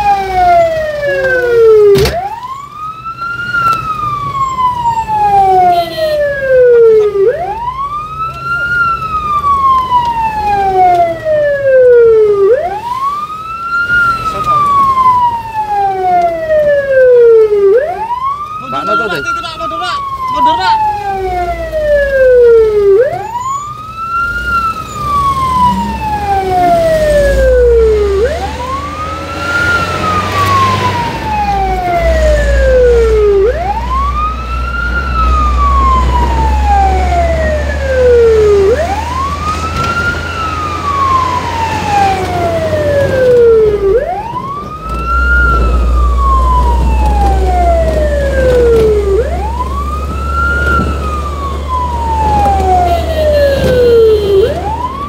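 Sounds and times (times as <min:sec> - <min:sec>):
fire engine siren wailing: 0:00.0 - 0:55.0
truck engine low rumble: 0:20.0 - 0:55.0.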